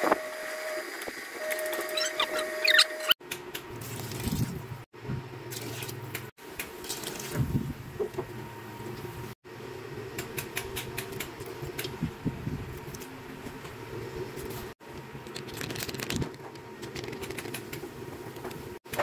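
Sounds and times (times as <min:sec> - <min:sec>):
low kitchen hum: 0:01.5 - 0:19.0.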